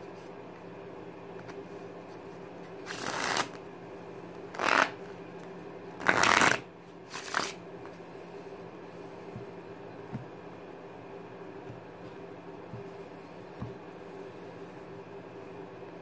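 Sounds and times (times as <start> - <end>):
playing cards shuffled: 2.8 - 3.6, 4.5 - 7.6.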